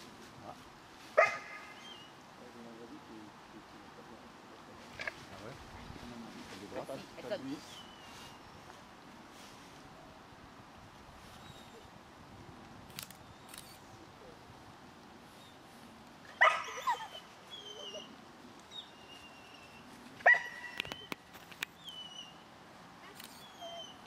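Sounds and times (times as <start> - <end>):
dog barking and yelping: 1.2 - 2.0, 16.3 - 18.2, 20.2 - 21.2.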